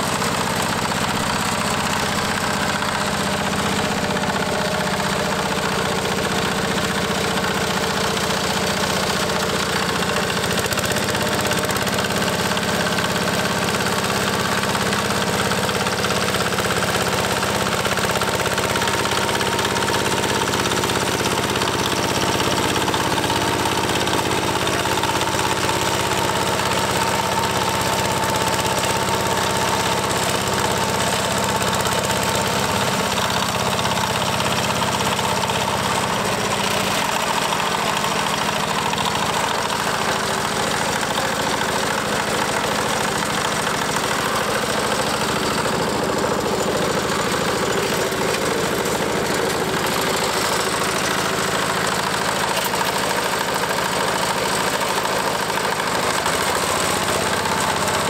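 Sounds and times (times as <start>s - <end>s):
diesel tractor engine running: 0.0s - 58.0s
rotary tiller working soil: 0.0s - 58.0s.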